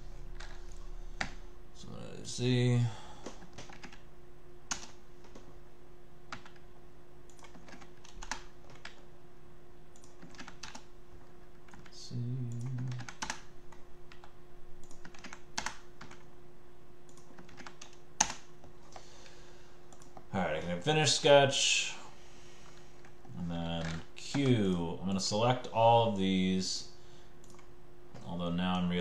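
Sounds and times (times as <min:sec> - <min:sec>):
faint electrical hum: 0:00.0 - 0:29.0
keyboard typing: 0:03.2 - 0:04.0, 0:04.7 - 0:05.5, 0:06.3 - 0:06.6, 0:07.3 - 0:09.1, 0:09.9 - 0:16.3, 0:17.1 - 0:19.0, 0:27.4 - 0:28.8
man humming: 0:12.0 - 0:13.1.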